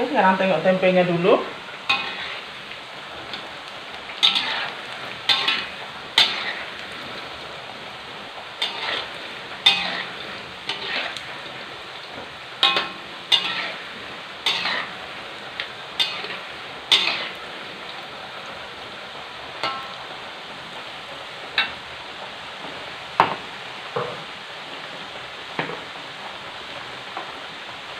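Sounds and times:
food frying in hot oil: 0.0s - 27.9s
spatula scraping a wok: 1.8s - 7.6s, 8.5s - 17.7s.

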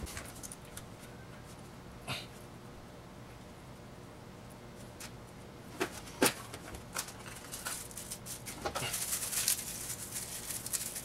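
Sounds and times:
plastic bag crinkling: 6.9s - 11.0s.

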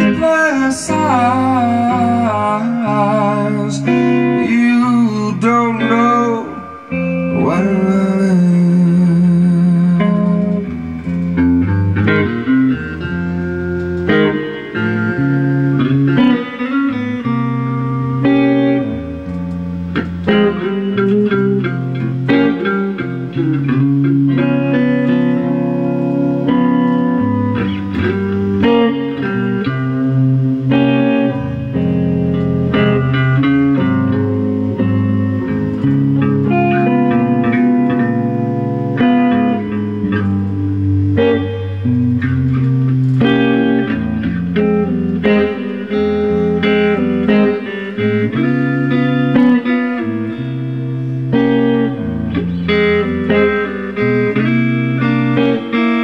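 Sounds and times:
person singing: 0.0s - 10.8s
band playing electric guitars: 0.0s - 56.0s.

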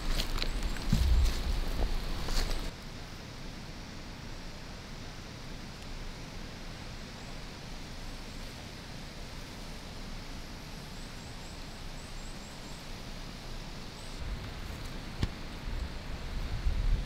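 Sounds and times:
wind rumble on microphone: 0.0s - 2.7s, 14.2s - 17.0s
steady outdoor hiss: 0.0s - 17.0s.

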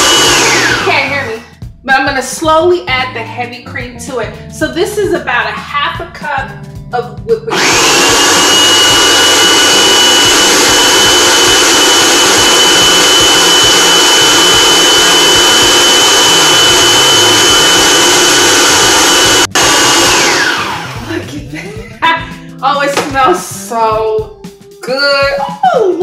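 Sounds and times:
food processor motor whining: 0.0s - 1.4s, 7.5s - 21.2s.

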